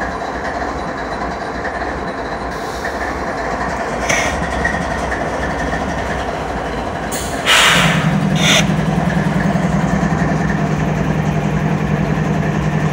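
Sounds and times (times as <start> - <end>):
diesel locomotive idling: 0.0 - 12.9
loud air hiss: 4.0 - 4.4, 7.1 - 9.0.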